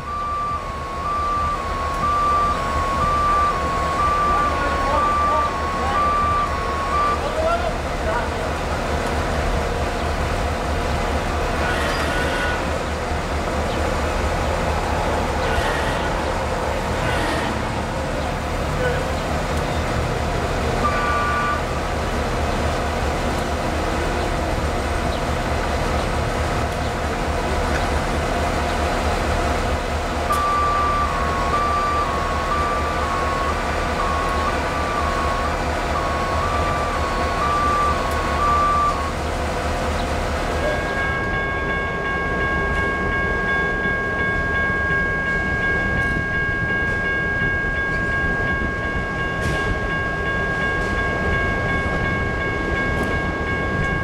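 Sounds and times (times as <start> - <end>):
two-tone beeping alarm: 0.0 - 7.4, 30.3 - 39.2
crane diesel engine running: 0.0 - 46.8
diesel train moving: 0.0 - 54.0
train horn chord: 11.6 - 12.7, 15.4 - 17.9, 20.8 - 21.8.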